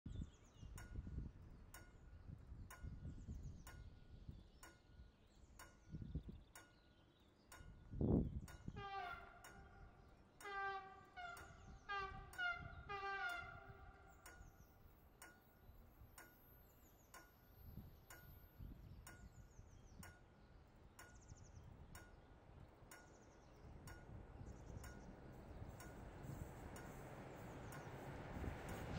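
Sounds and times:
faint sharp ticks: 0:00.7 - 0:04.9, 0:14.1 - 0:19.4, 0:22.9 - 0:28.9.

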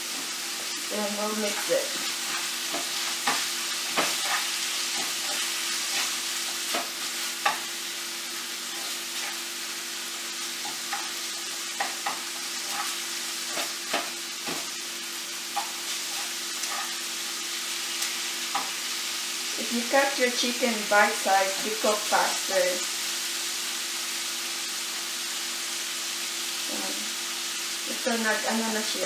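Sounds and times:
chicken sizzling in oil: 0:00.0 - 0:29.0
utensil scraping pan: 0:15.6 - 0:17.0.

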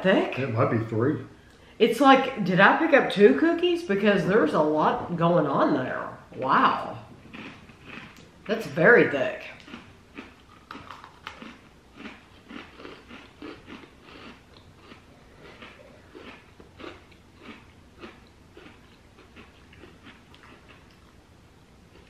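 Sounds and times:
cookie crunching: 0:09.4 - 0:21.2.

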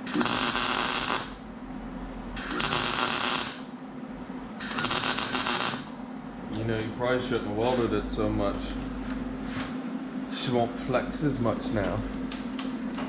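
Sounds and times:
welder crackling: 0:00.0 - 0:01.5, 0:02.4 - 0:03.7, 0:04.6 - 0:06.0.

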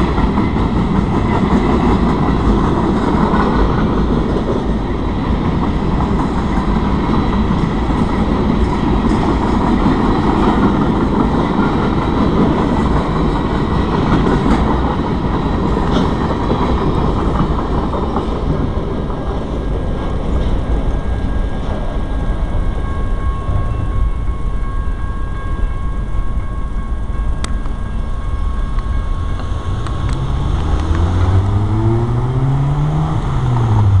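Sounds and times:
freight train cars rumbling: 0:00.0 - 0:34.0
car engine revving: 0:29.8 - 0:34.0.

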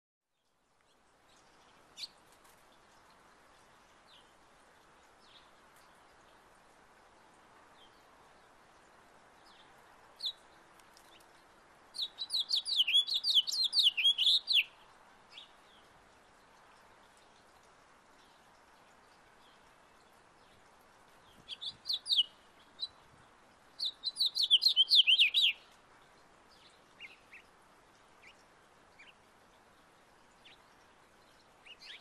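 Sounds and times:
faint background noise: 0:00.2 - 0:32.0
finch warbling song: 0:12.0 - 0:14.7, 0:23.8 - 0:25.6.

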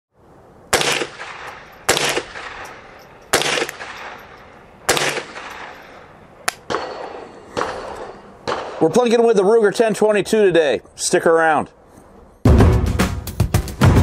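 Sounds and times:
rifle shots with echo: 0:00.7 - 0:09.0.

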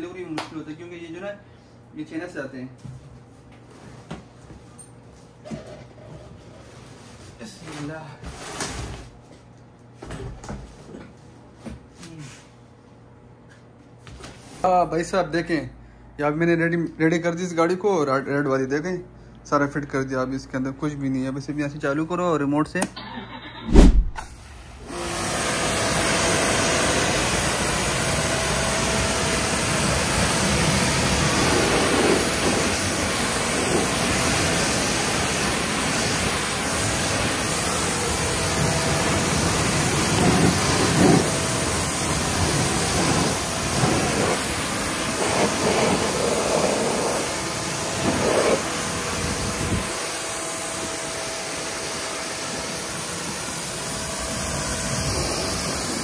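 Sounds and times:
low rumble: 0:23.6 - 0:24.3
pressure washer spray hissing: 0:24.2 - 0:56.0.

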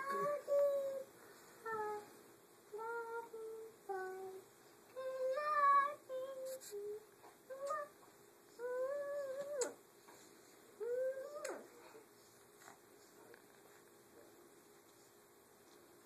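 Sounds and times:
child singing a lullaby: 0:00.0 - 0:09.8, 0:10.8 - 0:12.1.

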